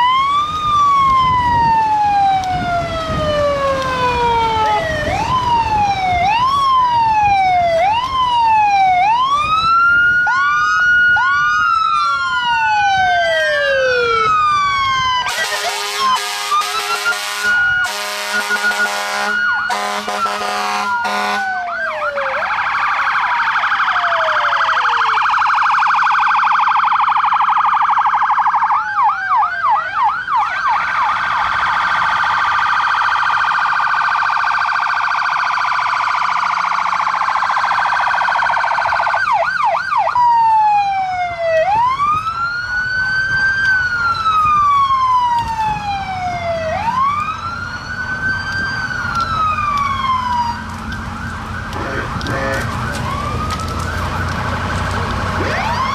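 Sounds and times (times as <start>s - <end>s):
sirens wailing and yelping: 0.0s - 55.9s
horn blasts: 15.3s - 21.5s, 51.8s - 52.8s.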